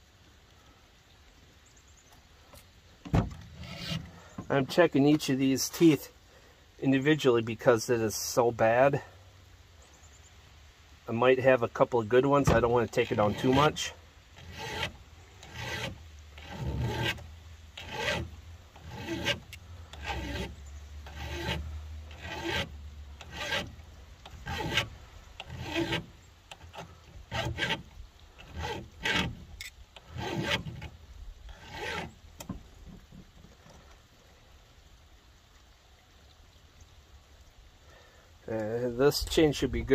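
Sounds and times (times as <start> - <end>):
file rasping on chainsaw chain: 3.6 - 4.2, 12.5 - 32.2.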